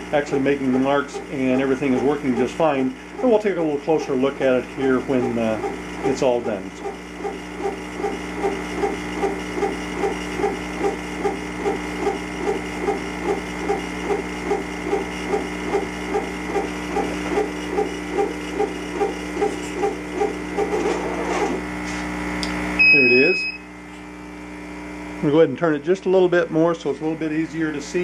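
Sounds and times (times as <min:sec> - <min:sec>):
stepper motors whirring: 0:00.0 - 0:21.8
steady machine hum: 0:00.0 - 0:28.0.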